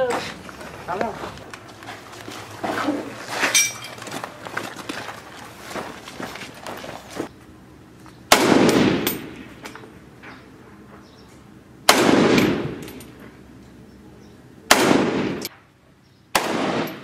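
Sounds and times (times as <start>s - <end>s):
rifle shots with echo: 8.3s - 9.5s, 11.9s - 13.0s, 14.7s - 15.5s, 16.3s - 17.0s.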